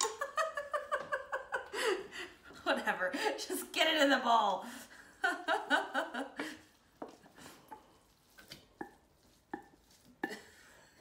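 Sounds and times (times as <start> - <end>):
soft squish of rice: 6.5 - 11.0.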